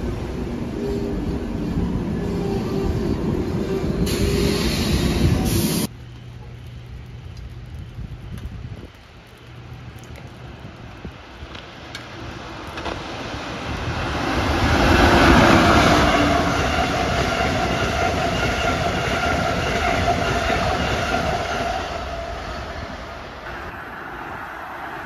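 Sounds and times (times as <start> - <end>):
steady train whine: 0.0 - 25.0
train rumble and wheel clatter: 0.0 - 25.0.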